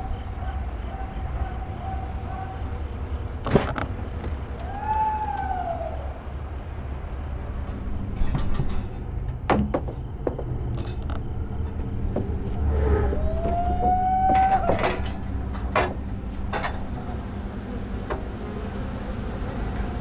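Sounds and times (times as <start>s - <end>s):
vehicle engine running: 0.0s - 9.4s, 10.2s - 20.0s
mechanical whine: 0.0s - 9.5s, 10.6s - 20.0s
sharp knocks: 9.5s - 10.6s.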